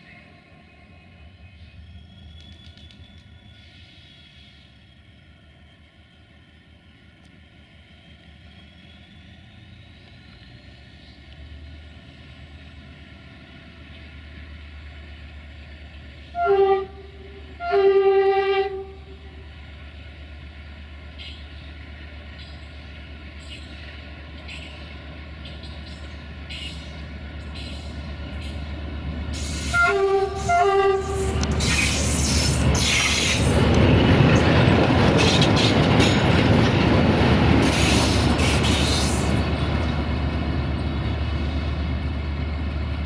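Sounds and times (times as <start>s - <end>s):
diesel locomotive engine drone: 0.0s - 43.0s
locomotive horn blasts: 16.3s - 19.3s, 29.6s - 31.5s.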